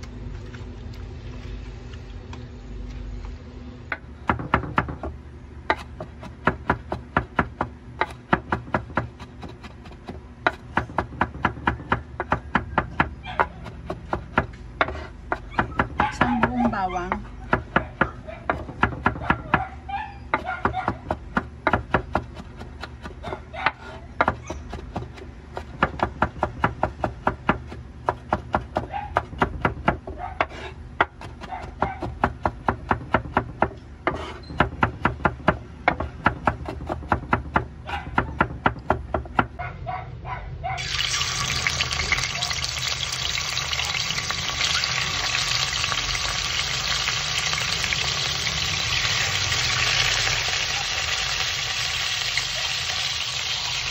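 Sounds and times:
knife chopping on wooden board: 5.7 - 19.6, 20.3 - 39.5
chicken sizzling in hot oil: 40.8 - 53.9.

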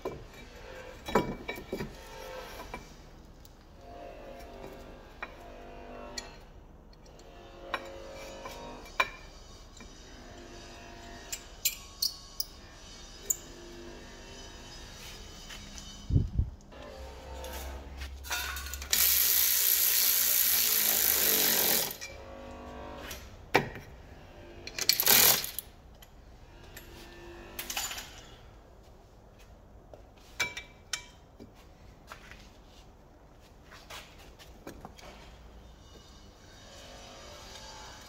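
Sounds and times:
air ratchet running: 18.8 - 22.1, 24.8 - 25.7.

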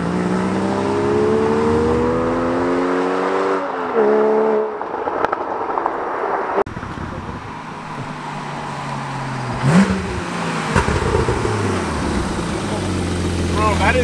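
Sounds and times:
car accelerating through gears: 0.0 - 4.8, 7.9 - 13.6.

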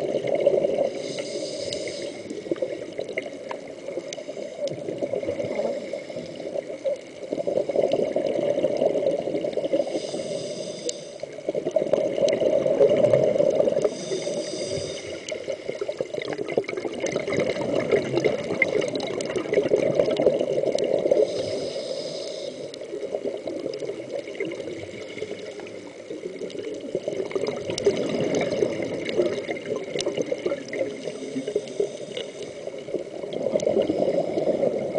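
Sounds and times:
inhalation hisses: 0.8 - 2.5, 9.7 - 11.3, 13.8 - 15.8, 21.1 - 22.8, 31.0 - 32.7
bubbly regulator exhalations: 15.7 - 21.4.

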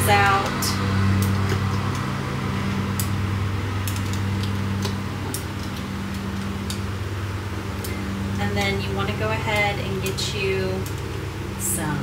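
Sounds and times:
kitchen appliance humming: 0.0 - 12.0.

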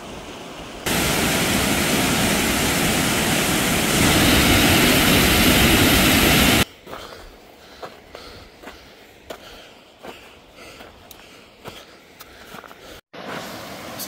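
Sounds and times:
fast-flowing stream rushing: 0.0 - 6.6.

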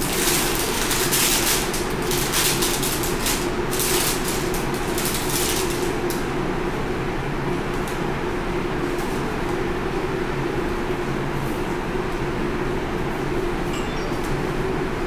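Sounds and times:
paper wrapping rustling: 0.0 - 6.2.

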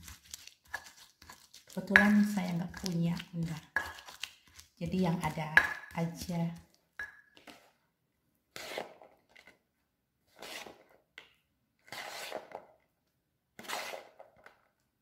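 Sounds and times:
stone pestle grinding in mortar: 0.0 - 6.6, 11.9 - 12.6.

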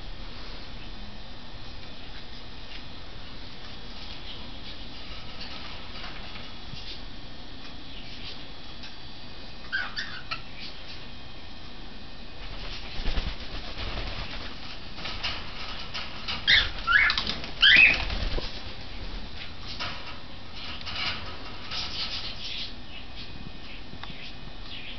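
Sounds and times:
wings flapping: 12.4 - 19.9
soft bird chirps: 22.2 - 24.9.

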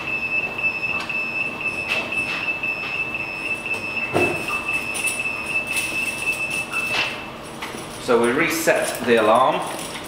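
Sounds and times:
timer alarm high tone: 0.0 - 7.2.

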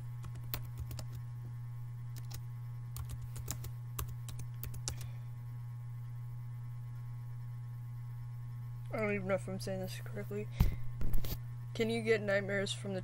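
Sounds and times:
low steady hum: 0.0 - 13.0
keyboard typing: 0.2 - 1.2, 2.2 - 2.4, 3.0 - 5.0.

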